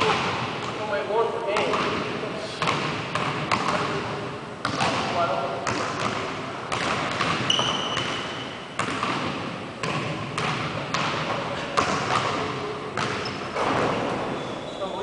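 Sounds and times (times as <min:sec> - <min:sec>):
basketball bouncing on hardwood floor: 0:02.6 - 0:03.9, 0:05.6 - 0:12.4, 0:13.0 - 0:14.0
brief high squeak: 0:14.3 - 0:15.0.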